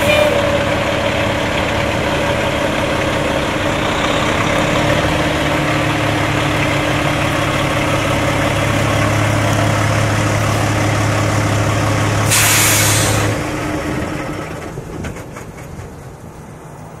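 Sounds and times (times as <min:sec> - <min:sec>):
diesel truck engine idling: 0:00.0 - 0:15.0
air hiss: 0:12.2 - 0:13.3.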